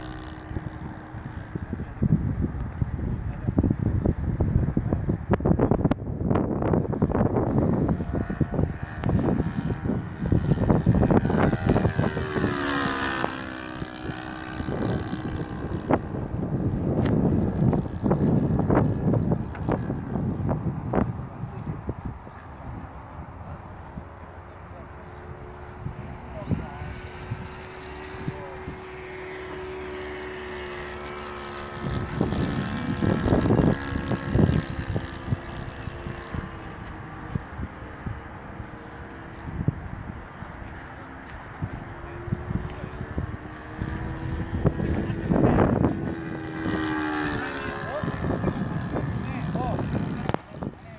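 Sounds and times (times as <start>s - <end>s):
model airplane engine: 0.0s - 50.9s
wind buffeting microphone: 0.0s - 50.9s.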